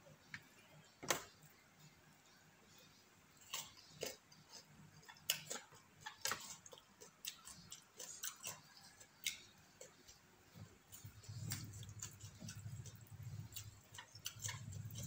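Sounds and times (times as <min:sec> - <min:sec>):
chewing and lip smacks: 0:03.4 - 0:10.2, 0:10.9 - 0:15.0.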